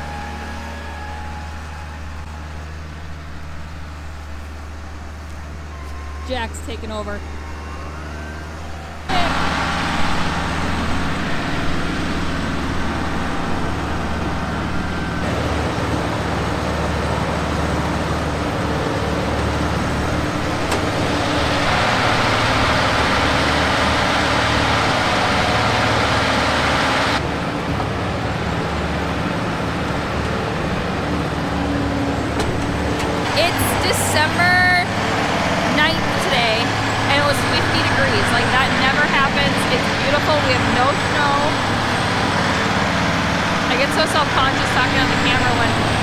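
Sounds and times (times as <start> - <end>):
engine drone: 0.0 - 46.0
hay grinder grinding hay: 9.0 - 27.2.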